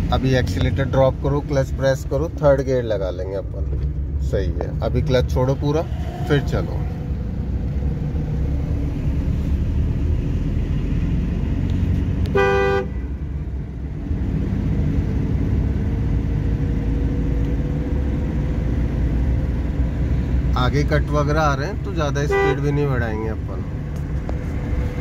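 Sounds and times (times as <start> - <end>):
car engine and road noise: 0.0 - 25.0
short car horn beep: 12.3 - 13.0.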